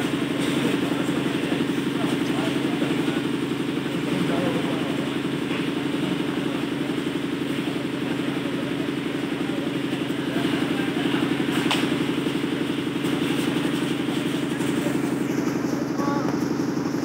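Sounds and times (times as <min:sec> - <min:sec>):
pulsing engine drone: 0:00.0 - 0:17.0.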